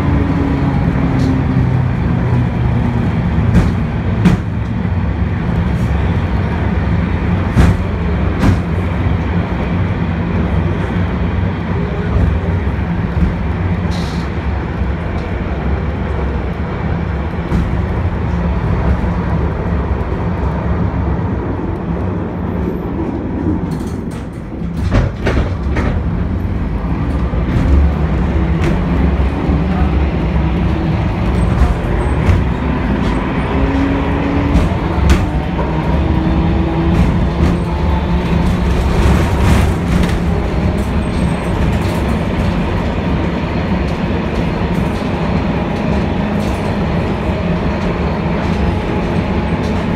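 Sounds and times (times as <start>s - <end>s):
tram wheels rumbling on rails: 0.0s - 49.9s.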